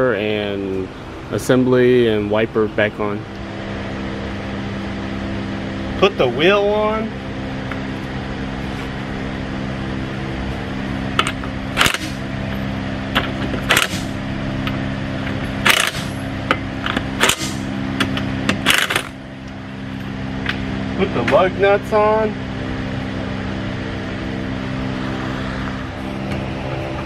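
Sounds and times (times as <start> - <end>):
steady hum: 0.0 - 27.0
impact wrench bursts: 11.2 - 12.3, 13.5 - 14.2, 15.6 - 19.2.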